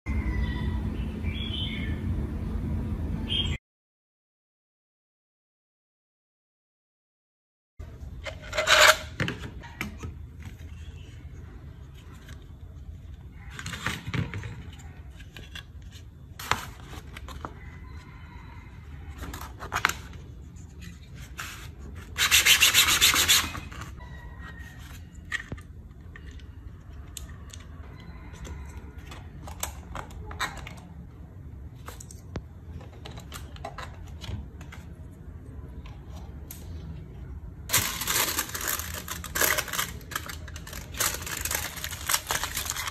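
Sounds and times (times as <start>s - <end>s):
plastic sanded on sandpaper: 21.1s - 24.0s.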